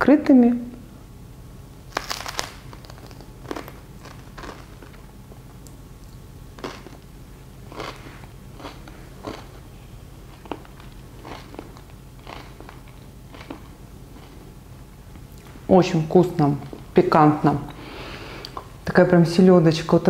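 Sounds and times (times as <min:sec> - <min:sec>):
person biting food: 0:01.9 - 0:07.1
chewing mouth noises: 0:07.7 - 0:09.6, 0:10.3 - 0:14.5.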